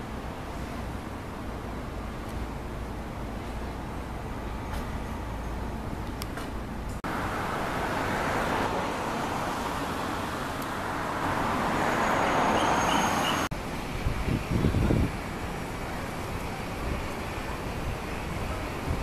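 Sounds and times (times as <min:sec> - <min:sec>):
traffic noise: 0:00.0 - 0:19.0
wind rumbling on microphone: 0:13.5 - 0:19.0.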